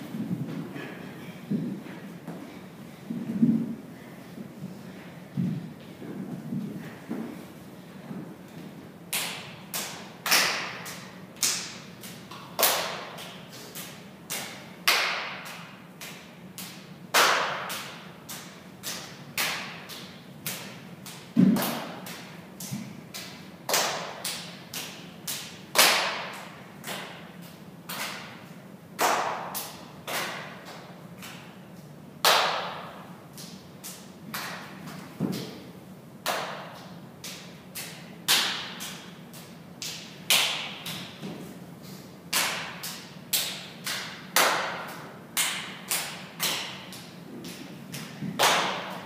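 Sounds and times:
echoing slaps and thuds: 0:09.1 - 0:27.3, 0:42.3 - 0:49.0.

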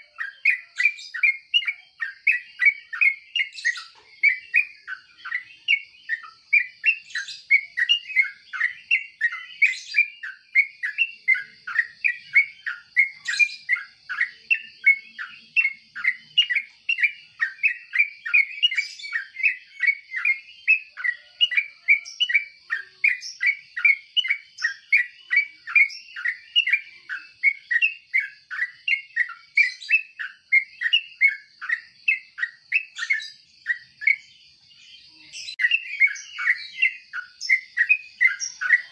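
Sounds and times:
bird chirping: 0:00.0 - 0:38.9.

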